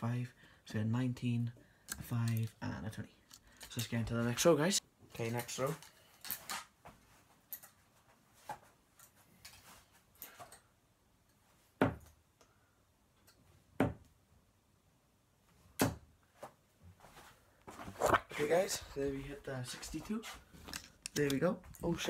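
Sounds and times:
darts thudding into dartboard: 15.8 - 16.1.

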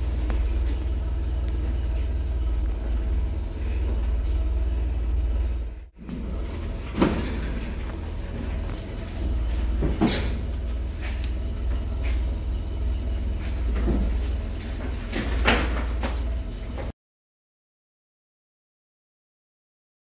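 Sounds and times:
steady low rumble: 0.0 - 16.8
hooves knocking on truck bed: 6.0 - 16.9.

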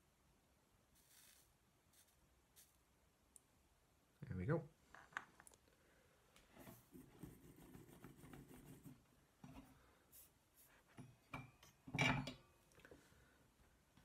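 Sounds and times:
soldering iron tip scratching brass wool: 0.9 - 2.8.

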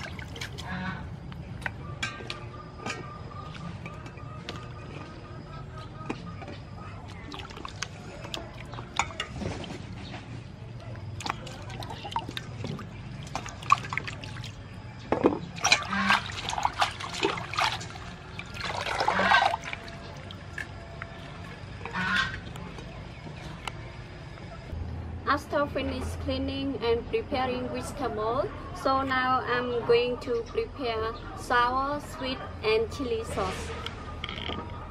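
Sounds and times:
water splashing in a metal bowl: 0.0 - 0.8, 7.0 - 9.9, 10.8 - 14.8, 15.4 - 22.7.

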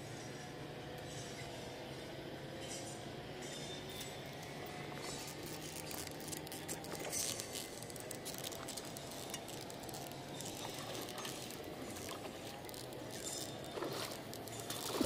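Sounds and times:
fishing reel clicks and rubbing: 3.9 - 15.0.

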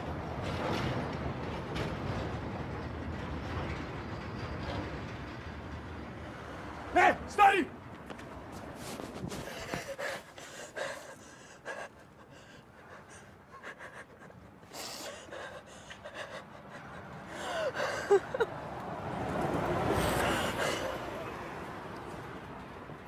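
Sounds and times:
people gasping and panting: 8.9 - 18.9, 19.7 - 21.8.

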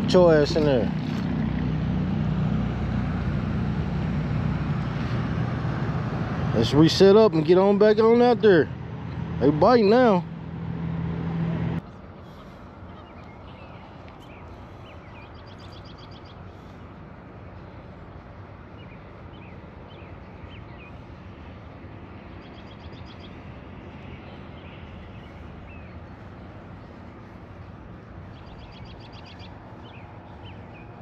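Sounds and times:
low outdoor rumble: 0.0 - 31.0
bird chirps: 28.3 - 31.0.

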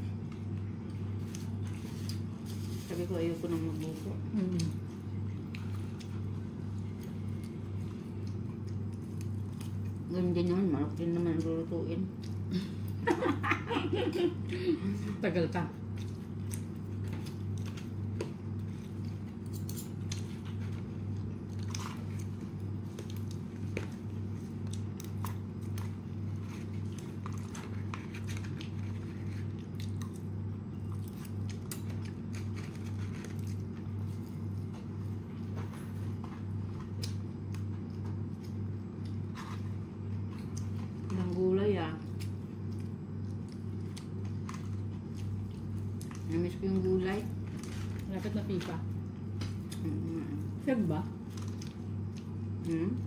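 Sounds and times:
low pulsing hum: 0.0 - 53.0
chewing crispy fried chicken: 3.6 - 53.0.

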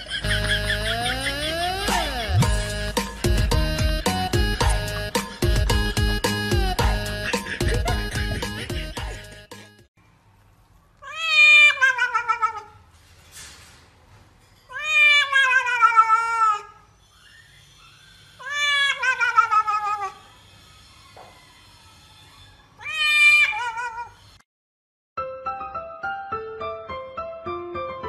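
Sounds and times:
cat meowing: 11.0 - 12.8, 14.7 - 16.8, 18.4 - 20.2, 22.8 - 24.2.

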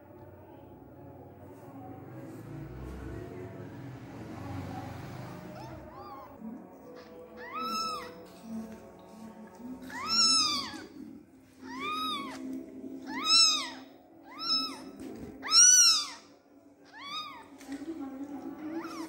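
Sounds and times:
kittens mewing: 5.4 - 8.4, 9.8 - 17.5, 18.6 - 19.0.

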